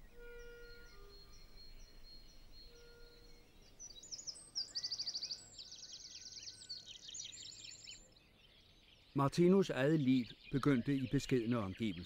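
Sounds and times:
soft sustained music notes: 0:00.0 - 0:04.2
songbirds singing trills: 0:00.0 - 0:12.0.

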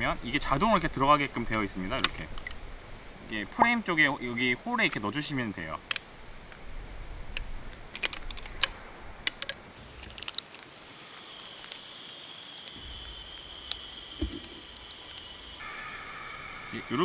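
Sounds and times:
steady high buzz: 0:10.7 - 0:17.0.

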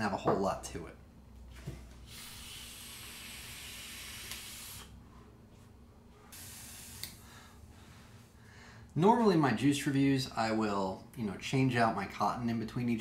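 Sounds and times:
air hissing through vape coil: 0:02.1 - 0:05.0, 0:06.3 - 0:07.2
breathy hiss of exhaling: 0:02.1 - 0:05.0, 0:06.3 - 0:07.6.

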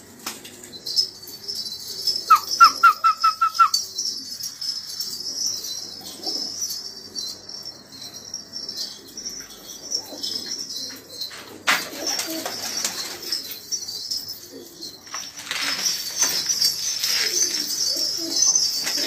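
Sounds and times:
pigeons cooing: 0:00.0 - 0:19.0
wings flapping: 0:11.6 - 0:13.6.

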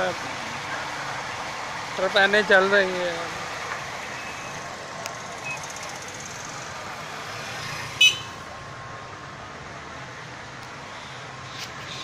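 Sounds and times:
road traffic hum: 0:00.0 - 0:12.0
car horn toot: 0:08.0 - 0:08.4.

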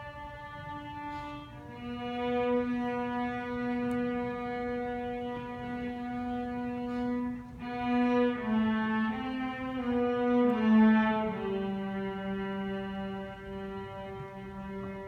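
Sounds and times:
bowed violins playing slowly: 0:00.0 - 0:15.0.

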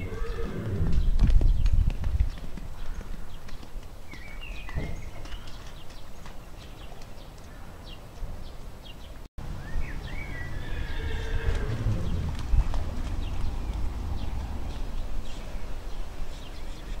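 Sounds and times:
hoofbeats on wet ground: 0:00.0 - 0:07.6, 0:10.4 - 0:15.6
birds chirping: 0:00.0 - 0:17.0.

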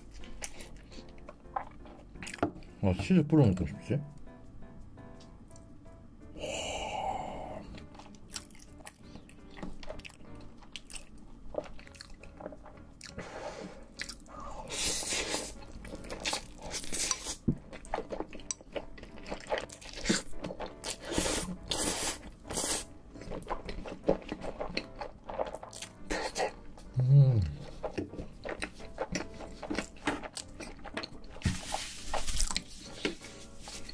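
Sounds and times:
person slurping noodles: 0:14.4 - 0:15.6, 0:20.9 - 0:22.9.

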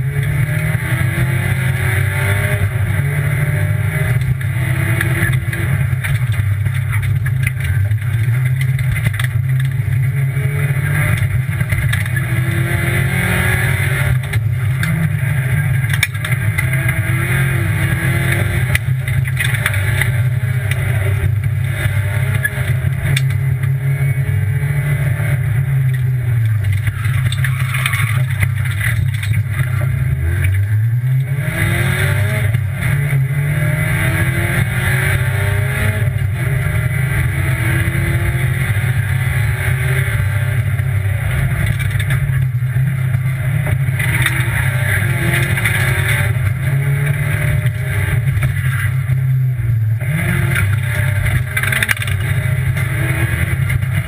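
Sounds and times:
rally car engine revving: 0:00.0 - 0:54.0.

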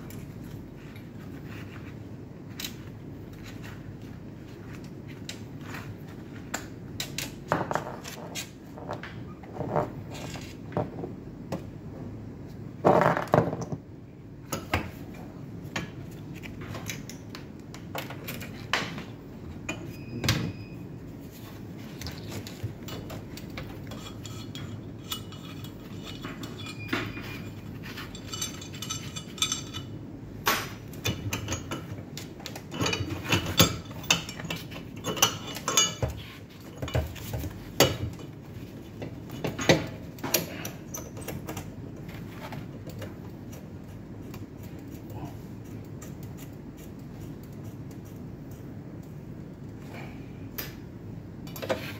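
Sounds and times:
low background hum: 0:00.0 - 0:51.9
metal parts clinking and knocking: 0:23.8 - 0:30.0.

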